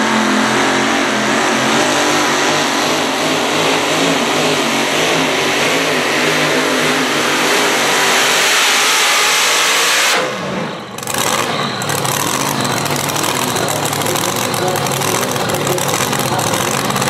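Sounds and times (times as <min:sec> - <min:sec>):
tractor engine running under load: 0:10.7 - 0:17.0.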